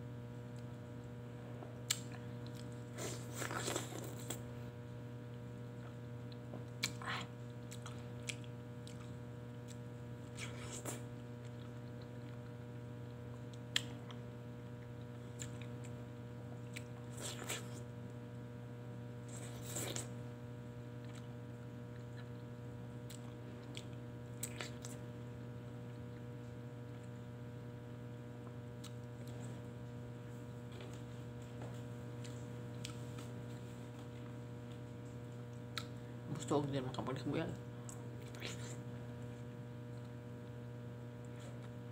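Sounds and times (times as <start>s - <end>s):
steady electrical hum: 0.0s - 41.9s
person chewing and lip smacking: 1.8s - 4.4s, 5.8s - 17.9s, 19.3s - 20.1s, 21.0s - 26.2s, 28.4s - 29.7s, 30.7s - 36.0s, 37.8s - 40.6s.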